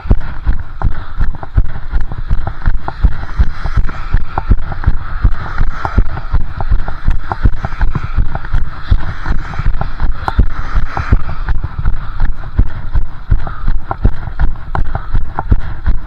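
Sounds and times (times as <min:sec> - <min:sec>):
steady hiss: 0:00.0 - 0:13.3.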